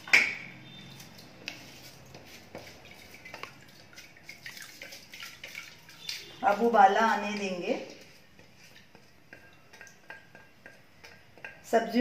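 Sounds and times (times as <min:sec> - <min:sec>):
water drips and plops: 0:02.6 - 0:11.7.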